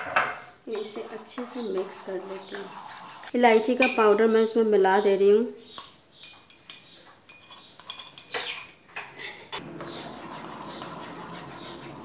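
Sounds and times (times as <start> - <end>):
metal spoon clinking on bowl: 3.8 - 4.2, 5.8 - 8.8.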